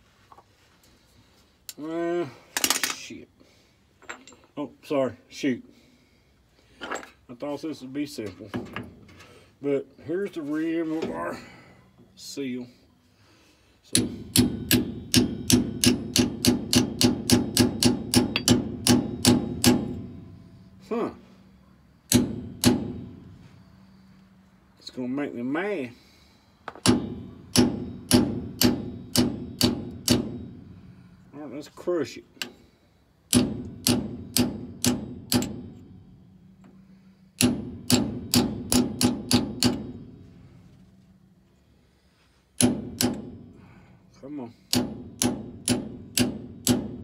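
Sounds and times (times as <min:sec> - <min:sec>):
hammer striking metal tool: 0:13.9 - 0:20.8, 0:22.1 - 0:23.3, 0:26.7 - 0:30.8, 0:33.3 - 0:40.2, 0:42.6 - 0:43.5, 0:44.7 - 0:47.0.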